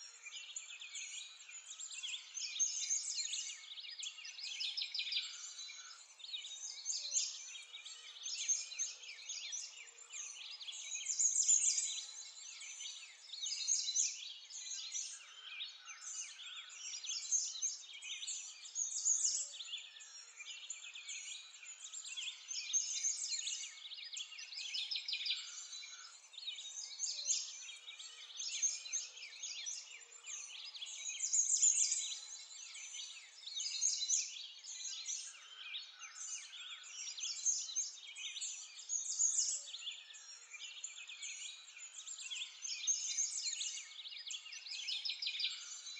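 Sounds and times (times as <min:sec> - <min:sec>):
songbirds chirping and calling: 0:00.0 - 0:45.9.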